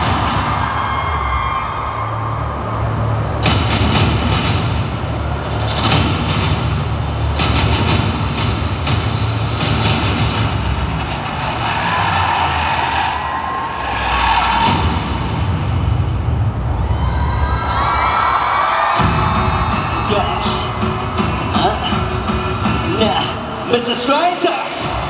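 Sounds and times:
music over sound system: 0.0s - 13.2s, 18.9s - 25.0s.

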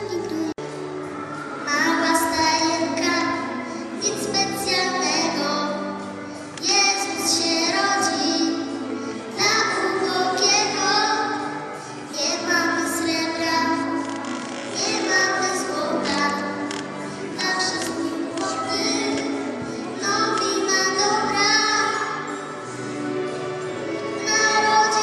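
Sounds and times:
girl singing a carol: 1.6s - 5.9s, 6.6s - 14.0s, 14.7s - 22.4s, 24.2s - 25.0s
singer breathing: 3.6s - 4.0s, 19.6s - 20.0s.

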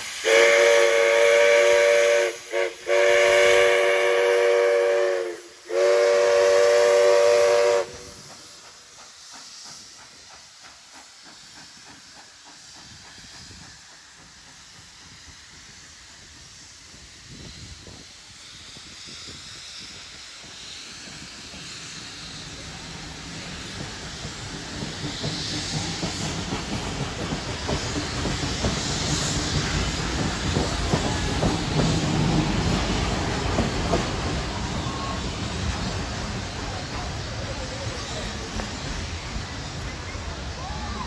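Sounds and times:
steam locomotive chuffing: 0.0s - 41.0s
steam locomotive whistle: 0.2s - 8.6s.

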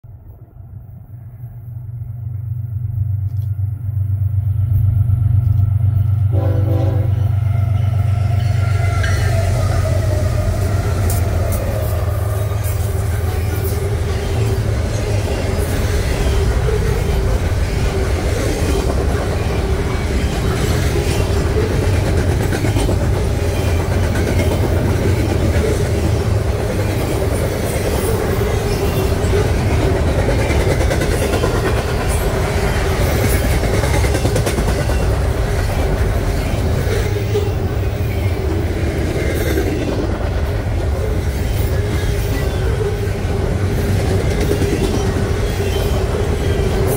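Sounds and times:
wheels roaring on rails: 0.1s - 46.9s
train horn blast: 6.2s - 13.9s.

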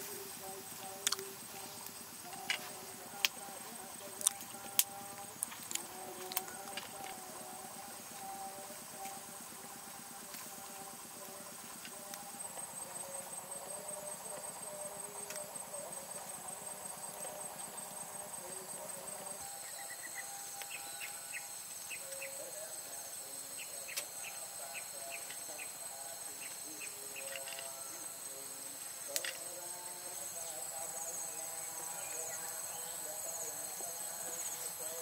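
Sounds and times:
insects chirring: 0.0s - 35.0s
bird chirps: 19.4s - 22.4s.

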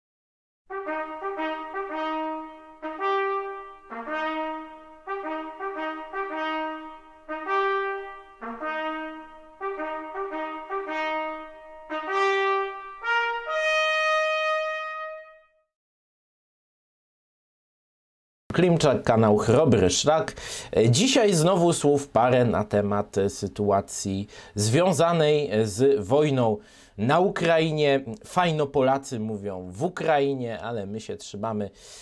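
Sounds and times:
brass fanfare: 0.7s - 15.6s.

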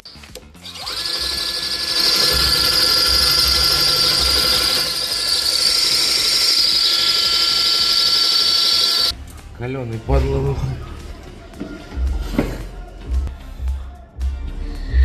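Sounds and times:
cordless drill running: 0.6s - 9.1s.

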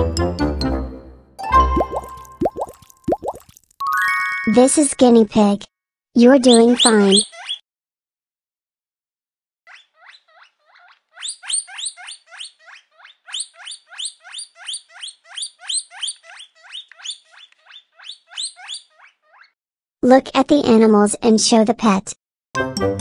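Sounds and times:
guinea pig squeaking: 6.2s - 7.6s, 9.7s - 19.6s.

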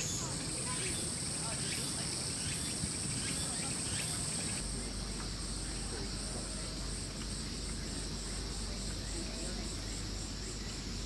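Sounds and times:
cicadas droning: 0.0s - 11.0s
faint background murmur: 0.0s - 11.0s
low steady hum: 2.7s - 11.0s.

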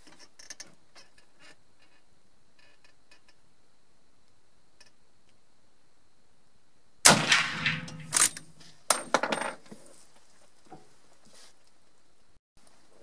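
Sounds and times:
rifle shot: 7.0s - 8.6s.

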